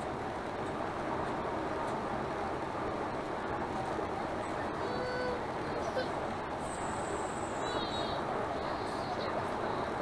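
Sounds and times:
bus cabin road and engine noise: 0:00.0 - 0:10.0.

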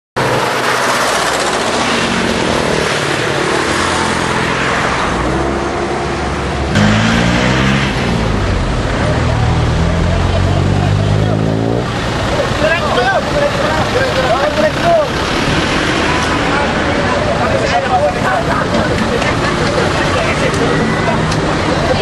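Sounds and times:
car engines in slow traffic: 0:04.8 - 0:22.0.

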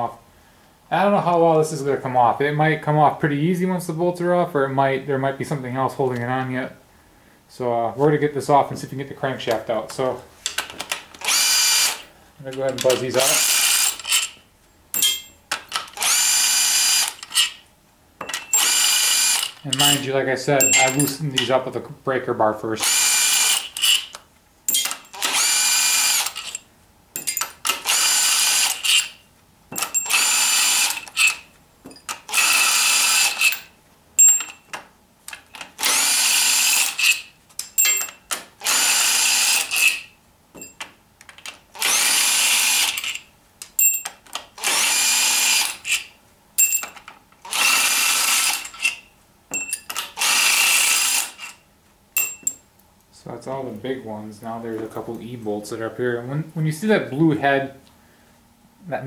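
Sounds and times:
cordless impact gun bursts: 0:11.2 - 0:12.1, 0:12.9 - 0:14.3, 0:15.7 - 0:17.5, 0:18.6 - 0:19.6, 0:22.8 - 0:24.1, 0:24.8 - 0:26.6, 0:27.6 - 0:29.2, 0:29.8 - 0:31.4, 0:32.2 - 0:33.7, 0:35.7 - 0:37.2, 0:38.6 - 0:40.1, 0:41.7 - 0:43.2, 0:44.6 - 0:46.0, 0:47.4 - 0:48.9, 0:50.0 - 0:51.5.

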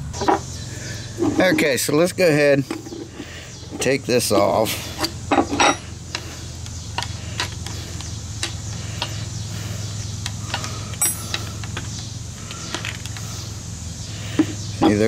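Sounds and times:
steady low hum: 0:00.0 - 0:15.0
sharp metallic clink: 0:11.0 - 0:11.5.

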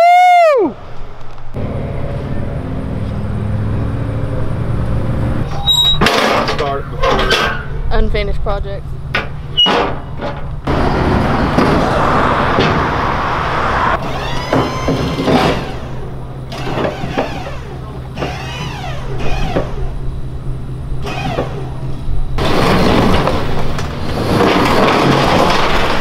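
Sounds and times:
steady low hum: 0:00.8 - 0:24.5
pallet jack squeaking: 0:05.4 - 0:07.8, 0:09.3 - 0:11.6, 0:14.0 - 0:20.0, 0:21.0 - 0:26.0
liftgate motor whirring: 0:14.0 - 0:23.9.

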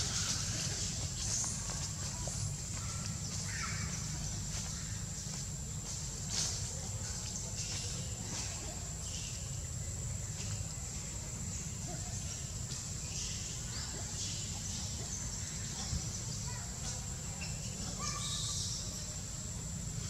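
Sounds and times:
chirps: 0:07.1 - 0:10.7, 0:11.5 - 0:19.5.

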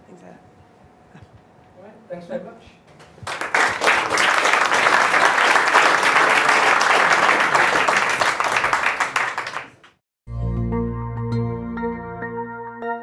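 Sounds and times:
audience applauding: 0:03.2 - 0:10.0.

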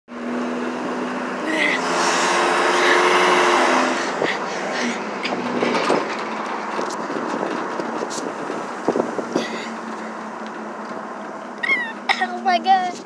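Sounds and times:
truck engine and road noise: 0:00.1 - 0:13.0
knocks and rattles: 0:04.3 - 0:11.7
wind on microphone: 0:05.3 - 0:09.6.

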